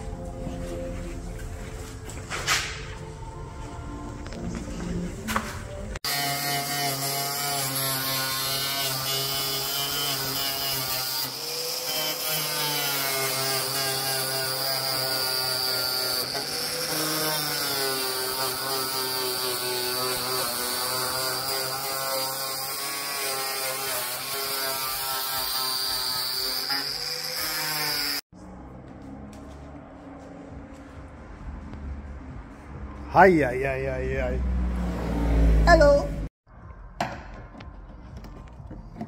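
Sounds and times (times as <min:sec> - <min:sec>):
angle grinder whining: 0:06.0 - 0:28.2.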